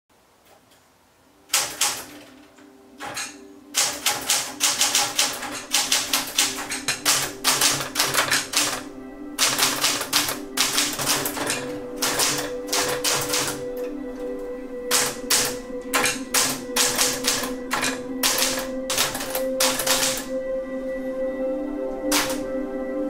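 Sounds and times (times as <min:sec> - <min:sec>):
typewriter keys typing: 0:01.5 - 0:02.3, 0:03.0 - 0:13.7, 0:14.9 - 0:20.3, 0:22.1 - 0:22.4.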